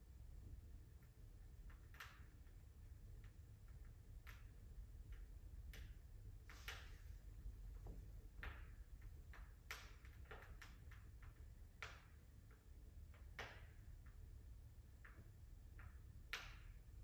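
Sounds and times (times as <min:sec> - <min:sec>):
low steady rumble: 0:00.0 - 0:17.0
fire crackling: 0:00.1 - 0:17.0
sharp pops of fire: 0:08.3 - 0:14.1, 0:14.9 - 0:17.0.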